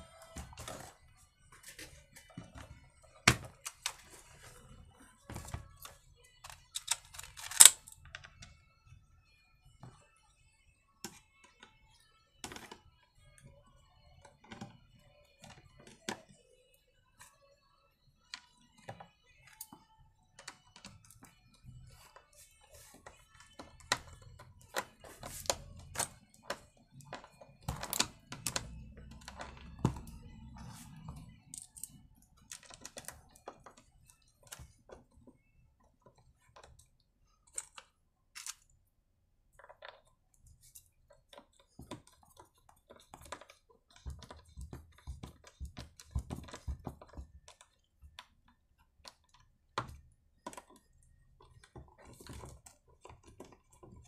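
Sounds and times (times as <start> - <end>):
plastic parts clicking and knocking: 1.7 - 4.4, 5.3 - 8.5, 23.0 - 38.8, 39.5 - 54.0.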